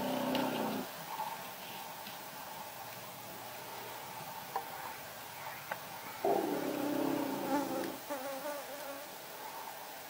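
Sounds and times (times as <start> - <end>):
insect buzzing: 6.5 - 9.2.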